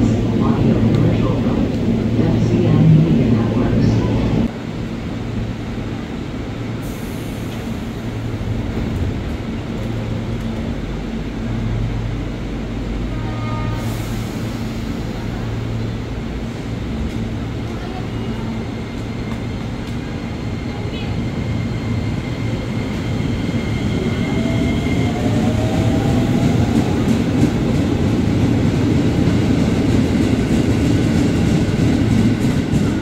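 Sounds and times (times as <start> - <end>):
train equipment humming: 0.0 - 33.0.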